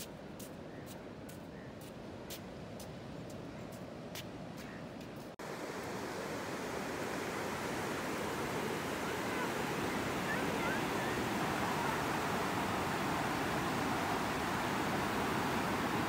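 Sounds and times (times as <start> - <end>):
sea surf breaking on beach: 5.4 - 16.0.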